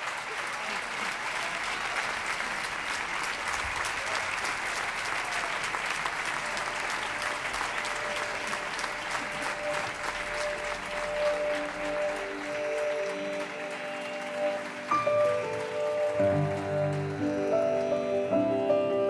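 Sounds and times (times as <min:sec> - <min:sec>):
applause: 0:00.0 - 0:18.4
background music: 0:06.2 - 0:19.0.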